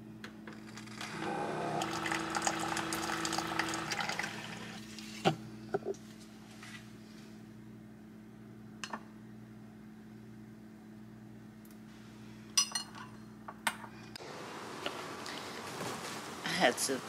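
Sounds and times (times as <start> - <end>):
steady low hum: 0.0 - 17.0
tableware clinking: 12.6 - 13.2.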